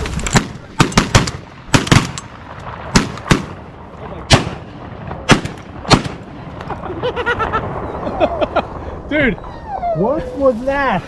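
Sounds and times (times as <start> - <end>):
shotgun shots: 0.0 - 6.5.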